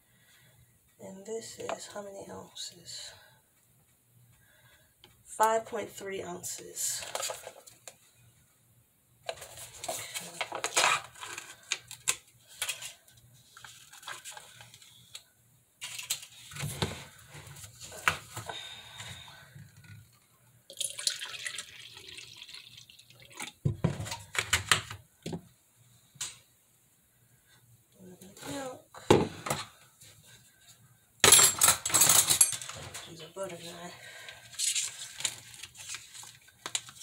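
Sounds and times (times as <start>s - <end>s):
liquid pouring: 20.7s - 23.6s.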